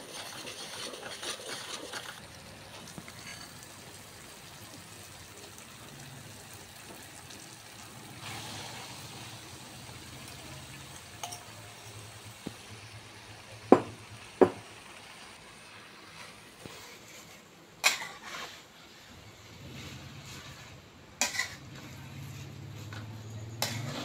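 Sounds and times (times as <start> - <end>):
paste sizzling in oil: 0.0 - 24.0
metal spatula knocking on pan: 13.7 - 14.6.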